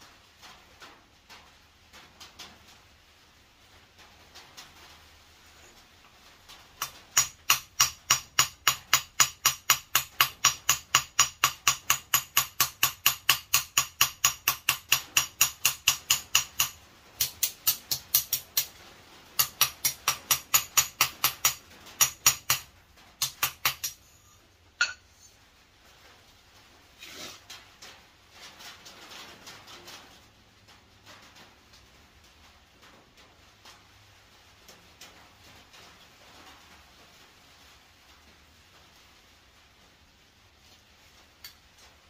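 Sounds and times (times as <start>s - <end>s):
hammer ringing on anvil: 24.8s - 25.0s.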